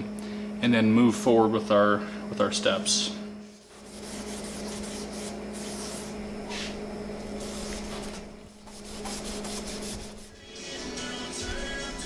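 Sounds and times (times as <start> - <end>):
hand sanding metal: 3.6 - 10.4.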